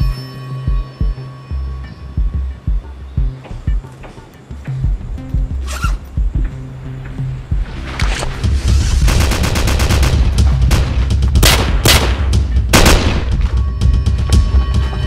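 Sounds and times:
heavy action film music: 0:00.0 - 0:15.0
pistol gunshots: 0:09.1 - 0:13.4.

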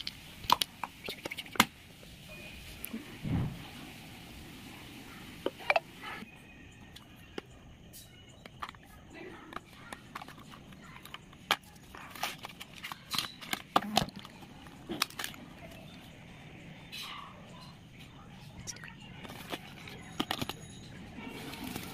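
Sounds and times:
cardboard and plastic clicking and crinkling: 0:08.3 - 0:15.9, 0:19.2 - 0:20.7.

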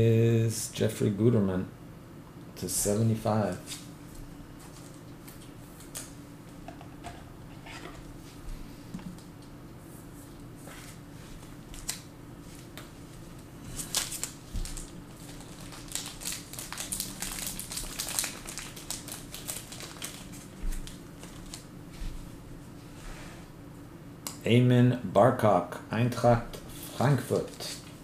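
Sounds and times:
steady low hum: 0:00.0 - 0:28.0
card packaging crinkling: 0:13.8 - 0:21.7, 0:27.0 - 0:28.0.

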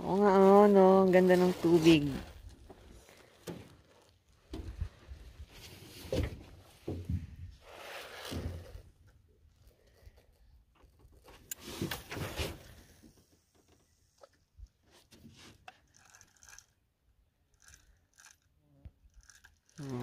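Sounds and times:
fishing reel click: 0:15.9 - 0:16.8, 0:17.5 - 0:18.5, 0:19.1 - 0:20.0.

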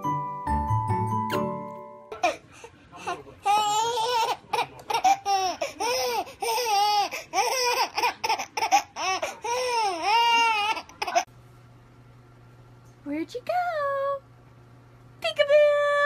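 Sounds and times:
baby laughing: 0:03.0 - 0:11.3.

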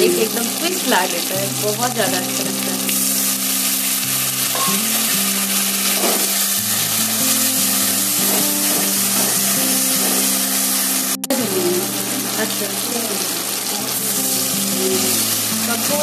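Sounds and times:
curry sizzling in oil: 0:00.0 - 0:16.0.

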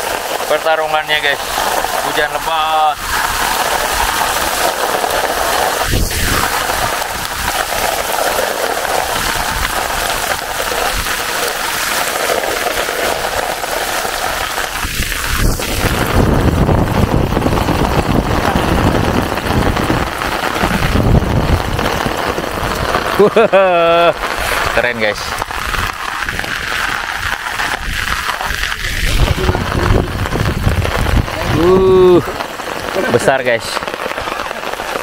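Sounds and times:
heavy rain on water: 0:00.0 - 0:35.0
low rumble: 0:27.7 - 0:32.0.

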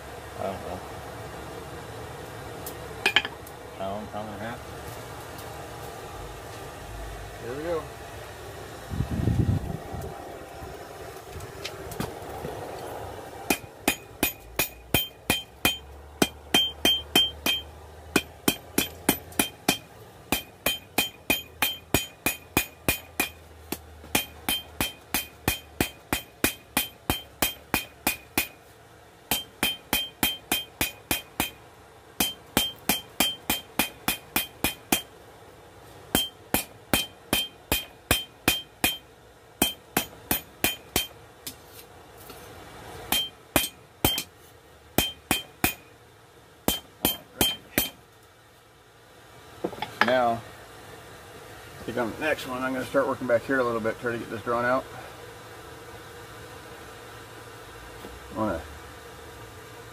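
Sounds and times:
hammer striking steel on anvil: 0:03.0 - 0:03.4, 0:13.5 - 0:28.6, 0:29.3 - 0:31.6, 0:32.2 - 0:35.1, 0:36.1 - 0:41.6, 0:43.1 - 0:44.3, 0:45.0 - 0:45.9, 0:46.6 - 0:48.0.

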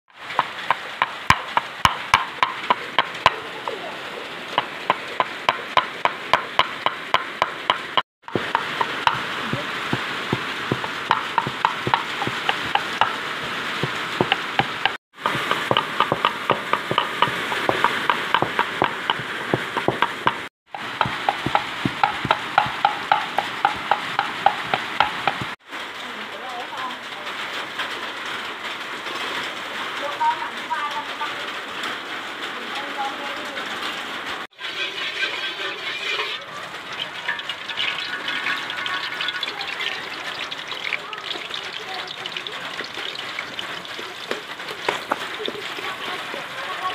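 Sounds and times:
pestle pounding in wooden mortar: 0:00.3 - 0:03.8, 0:04.5 - 0:25.6, 0:42.8 - 0:46.9
cleaver chopping on wooden board: 0:04.6 - 0:25.6.

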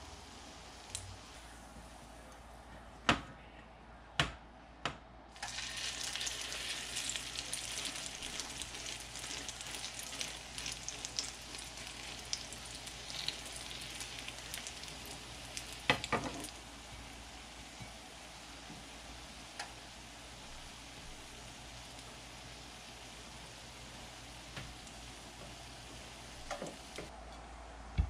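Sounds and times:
bread sizzling in hot fat: 0:05.4 - 0:16.7.

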